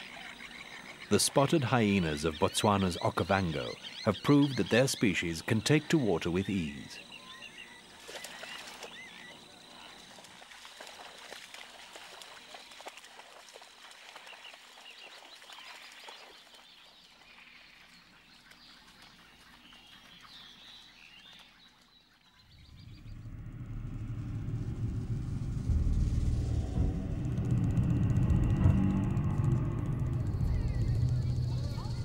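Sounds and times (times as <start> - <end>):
marsh ambience: 0.0 - 8.0, 22.3 - 32.0
small birds chirping: 0.0 - 10.4, 14.1 - 24.3
deep low rumble: 22.5 - 32.0.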